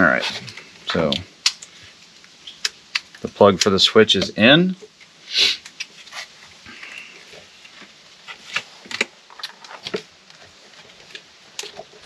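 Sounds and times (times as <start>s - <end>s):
small plastic clicks: 2.5s - 3.7s
short hiss: 5.2s - 7.2s.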